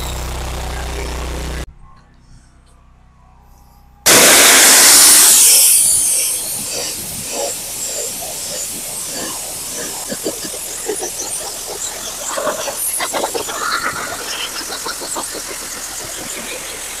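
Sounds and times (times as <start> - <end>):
pressure washer spray hissing: 4.1 - 17.0.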